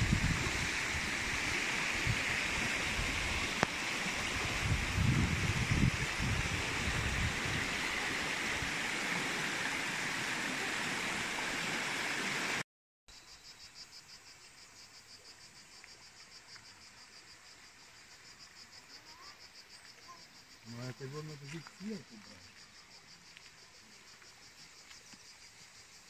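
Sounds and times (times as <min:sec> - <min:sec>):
stream rushing: 0:00.0 - 0:12.6
insects chirring: 0:13.1 - 0:26.0.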